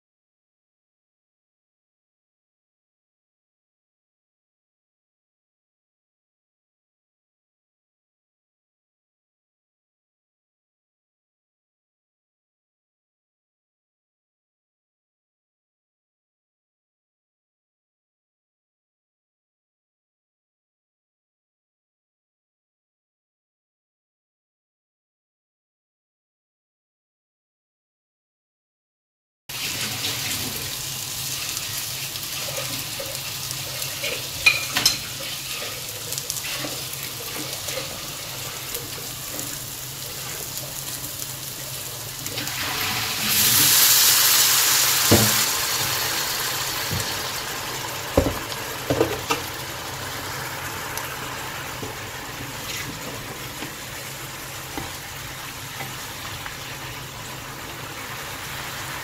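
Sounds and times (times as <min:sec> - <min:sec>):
food sizzling in a pan: 0:29.5 - 0:59.0
water poured into hot pan: 0:29.5 - 0:59.0.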